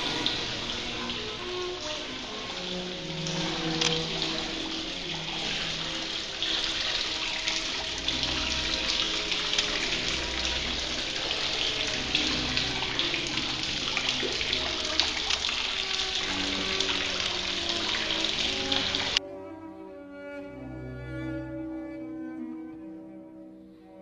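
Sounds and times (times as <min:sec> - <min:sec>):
fountain water splashing into basin: 0:00.0 - 0:19.2
soft background music: 0:00.0 - 0:24.0.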